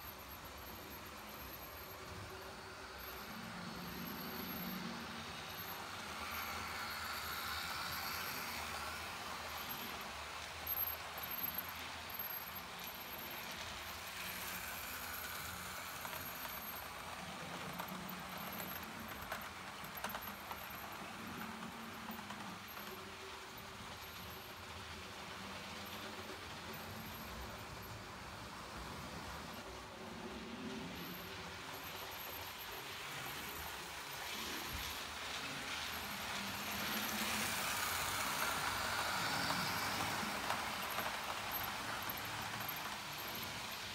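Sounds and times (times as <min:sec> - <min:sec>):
model train humming: 0:00.0 - 0:43.9
wheels clicking over rails: 0:00.0 - 0:43.9.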